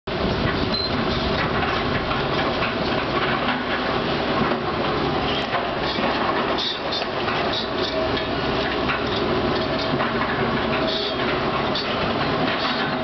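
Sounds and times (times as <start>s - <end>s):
excavator diesel engines running: 0.1s - 13.0s
rattle and clatter: 0.3s - 13.0s.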